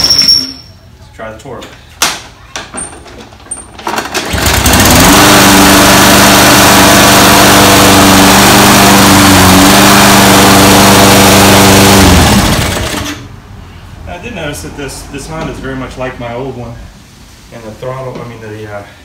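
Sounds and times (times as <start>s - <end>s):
lawn mower engine running: 3.8s - 13.2s.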